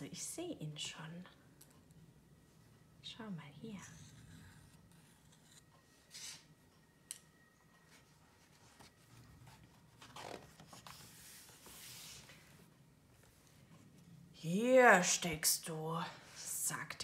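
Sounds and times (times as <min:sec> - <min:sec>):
paper page rustling: 0:08.4 - 0:12.4.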